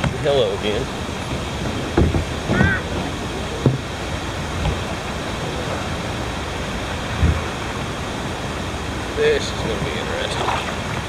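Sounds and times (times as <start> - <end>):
river water rushing over rocks: 0.0 - 11.0
dull knocks: 1.2 - 3.9, 4.6 - 5.0.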